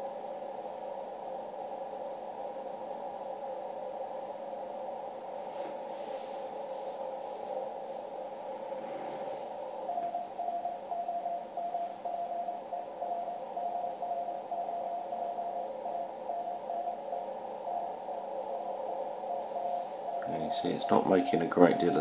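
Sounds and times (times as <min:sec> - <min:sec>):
radio hiss: 0:00.0 - 0:22.0
morse code beeping tone: 0:06.8 - 0:22.0.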